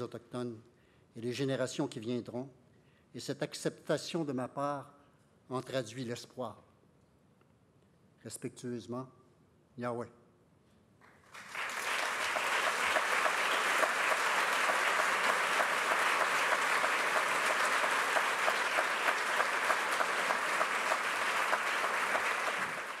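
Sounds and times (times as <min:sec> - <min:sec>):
audience applauding: 0:11.2 - 0:23.0.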